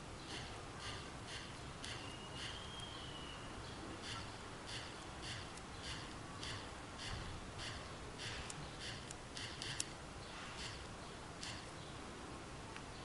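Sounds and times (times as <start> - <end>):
soft touchscreen ticks: 0.3 - 3.0, 4.0 - 10.0, 10.6 - 11.8
sharp click: 4.0 - 10.0, 10.6 - 11.8.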